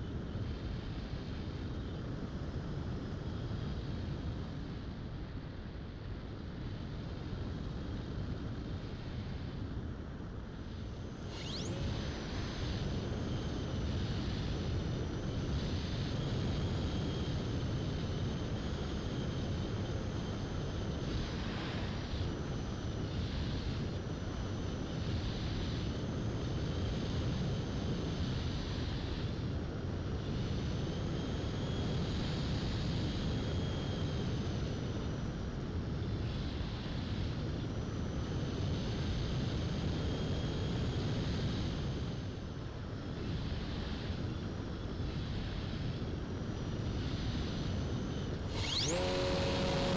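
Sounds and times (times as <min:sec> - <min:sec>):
model plane motor whine: 0:10.6 - 0:49.9.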